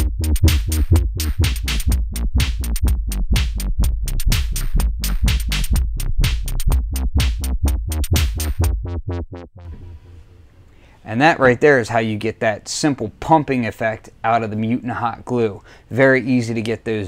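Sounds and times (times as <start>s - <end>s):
drum machine beat: 0.0s - 9.8s
heavy synth bass line: 0.0s - 10.5s.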